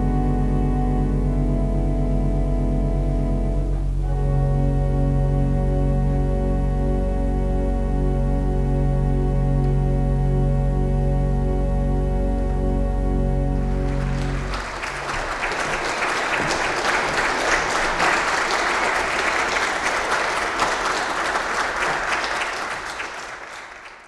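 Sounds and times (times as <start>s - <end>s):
pipe organ chord: 0.0s - 20.5s
audience applause: 13.7s - 24.0s.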